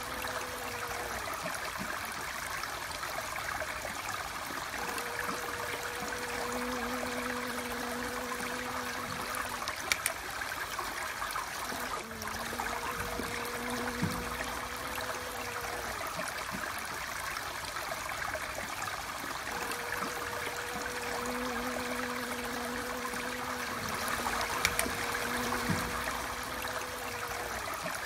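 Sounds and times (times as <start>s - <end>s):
small clicks: 8.4s - 10.3s, 23.8s - 27.0s
faint low hum: 19.4s - 28.0s.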